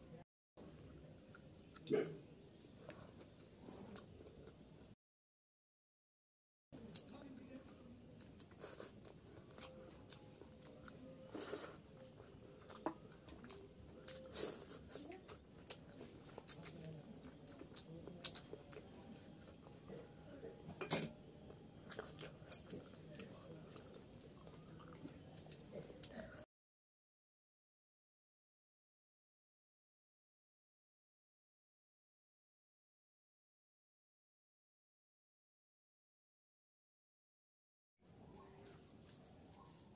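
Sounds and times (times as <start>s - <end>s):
person chewing wetly: 0.7s - 5.0s, 6.8s - 26.4s.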